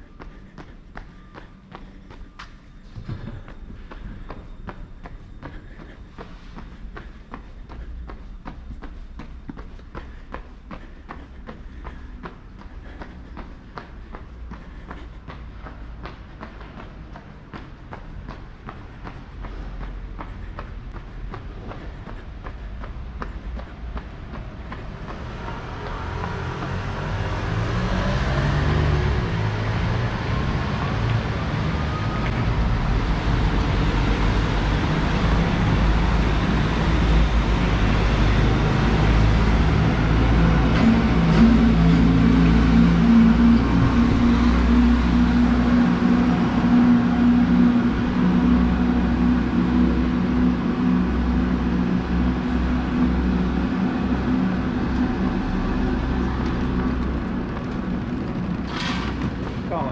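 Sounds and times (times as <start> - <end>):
low engine drone: 0.0 - 59.9
cars driving past: 9.5 - 59.9.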